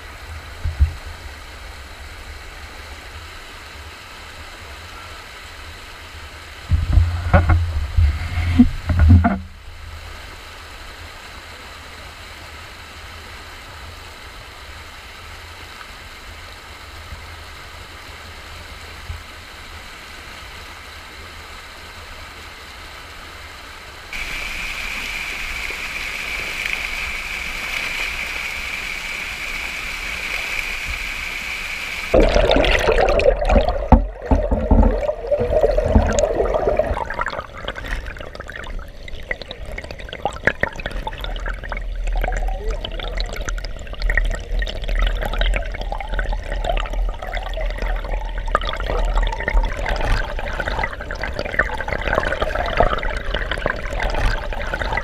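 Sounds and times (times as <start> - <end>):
muffled underwater rushing rumble: 6.6 - 10.4, 32.1 - 55.0
water pouring over waterfall: 24.2 - 55.0.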